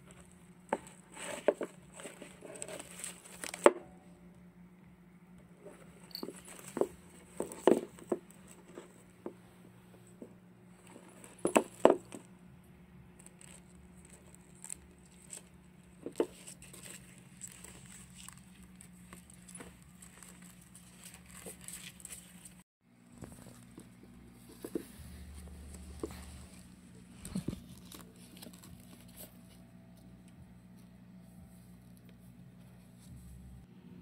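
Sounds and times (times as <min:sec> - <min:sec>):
low steady hum: 0:00.0 - 0:34.0
turtle shell knocking and scraping: 0:10.2 - 0:12.3.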